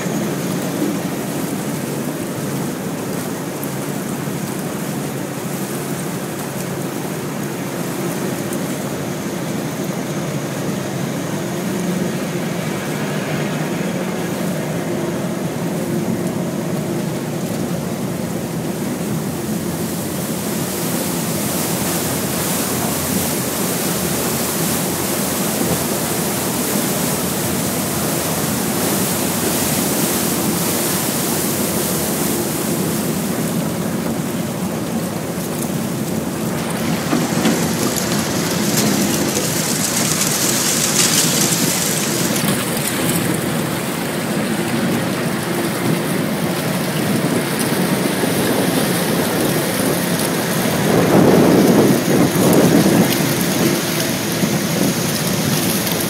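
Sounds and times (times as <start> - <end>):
low engine drone: 0.0 - 56.0
ice grinding along boat hull: 34.0 - 56.0.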